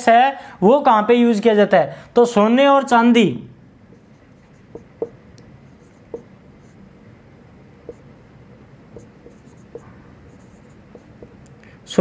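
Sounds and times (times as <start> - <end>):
marker scratching on whiteboard: 3.9 - 6.8, 7.8 - 8.2, 8.9 - 11.4
marker tip tapping board: 4.7 - 5.2, 6.0 - 6.3, 7.8 - 8.0, 8.9 - 11.4.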